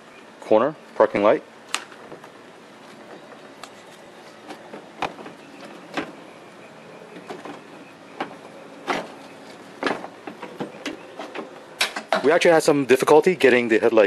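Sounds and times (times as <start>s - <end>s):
headlight knocking and scraping panels: 1.9s - 12.3s.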